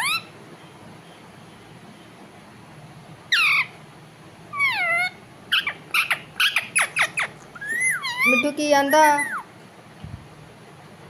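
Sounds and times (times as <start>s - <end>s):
parakeet calling: 0.0s - 0.4s, 3.3s - 3.8s, 4.5s - 9.6s.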